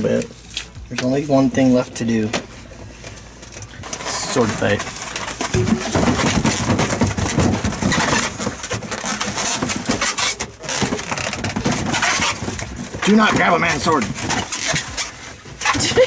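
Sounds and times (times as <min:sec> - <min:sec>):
balloons rubbing and squeaking: 0:03.8 - 0:16.0.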